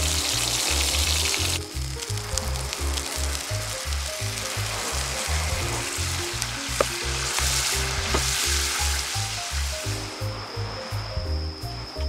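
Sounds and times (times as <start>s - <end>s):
meat sizzling in a skillet: 0.0s - 10.7s
music with bass beat: 0.0s - 12.0s
sauce hissing: 0.0s - 12.0s
sharp pops: 5.2s - 9.1s.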